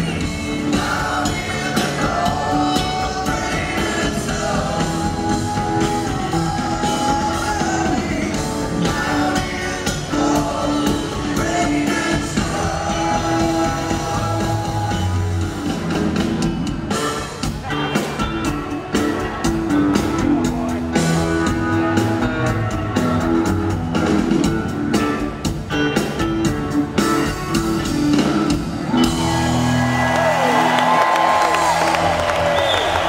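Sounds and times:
live rock band playing: 0.0s - 33.0s
crowd cheering and whistling: 28.8s - 33.0s.

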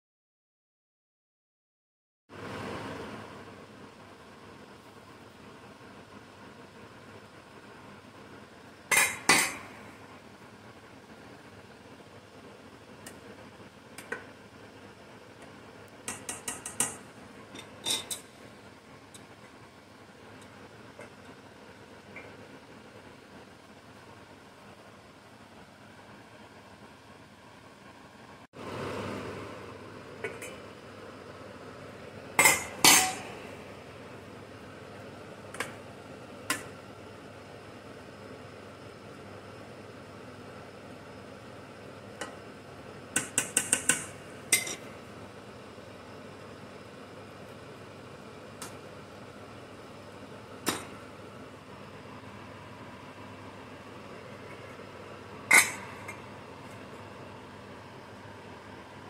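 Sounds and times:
spoon stirring rice in saucepan: 15.4s - 18.4s, 43.1s - 44.9s
spoon knocking on saucepan: 43.1s - 44.8s.

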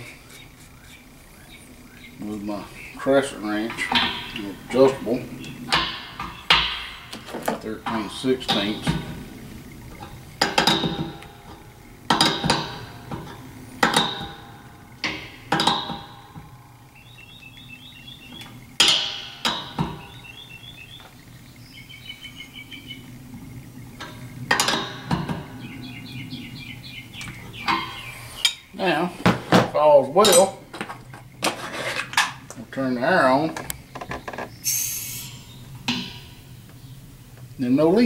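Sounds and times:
wrenches clanking on metal fitting: 3.0s - 16.5s, 24.0s - 25.5s, 29.6s - 32.7s.

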